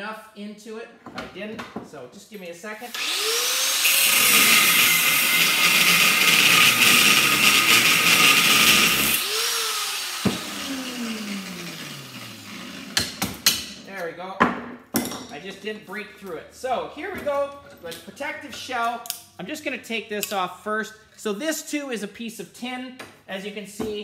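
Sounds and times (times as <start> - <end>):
electric grinder cutting steel: 2.9 - 13.2.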